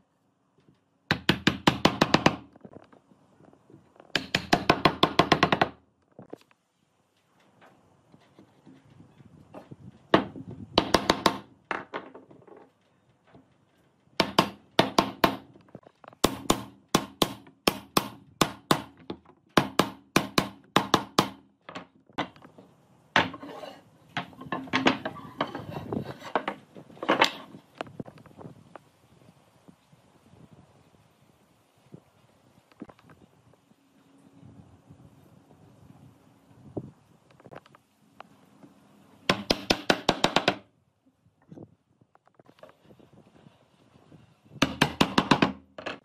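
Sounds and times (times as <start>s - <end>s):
hammer knocking wood: 1.1s - 2.4s, 10.2s - 12.2s, 14.2s - 15.5s, 39.3s - 40.6s, 44.6s - 45.6s.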